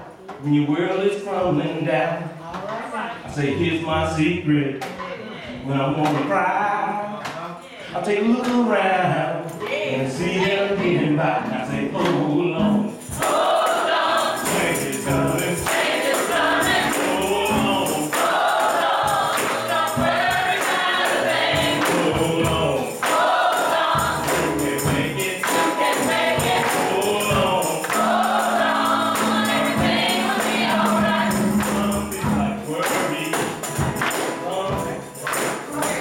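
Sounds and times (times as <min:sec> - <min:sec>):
choir singing: 0:09.5 - 0:36.0
tambourine: 0:12.8 - 0:36.0.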